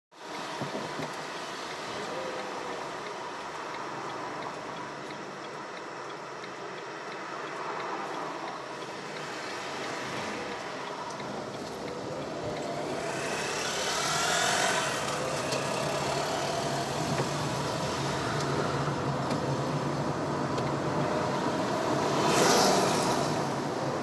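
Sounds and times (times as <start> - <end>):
hum of traffic: 0.1 - 24.0
motorcycle engines passing: 9.1 - 24.0.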